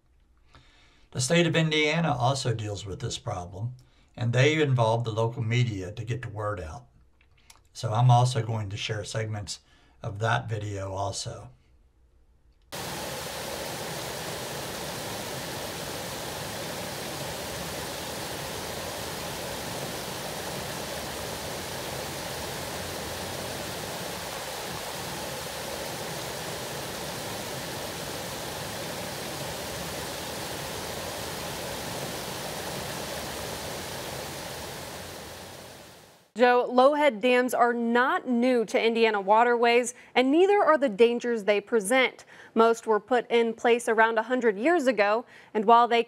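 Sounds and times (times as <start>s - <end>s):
river water pouring over dam: 12.8s - 36.3s.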